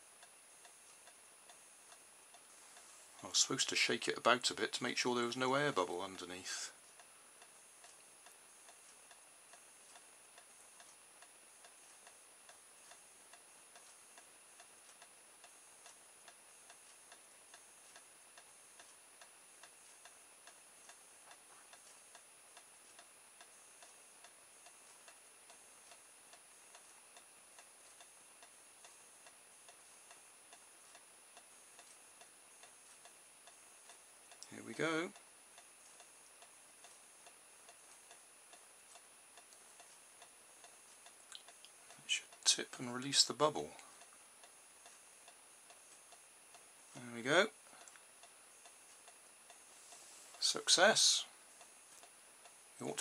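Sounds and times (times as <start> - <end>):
thin steady high whine: 0.0 - 53.0
clock ticking: 0.1 - 53.0.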